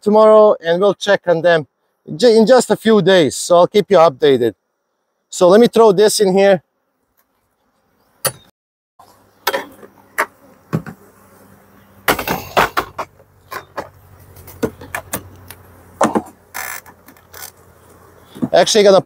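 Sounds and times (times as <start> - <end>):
wooden frames knocking on hive box: 10.2 - 11.1, 16.0 - 17.2.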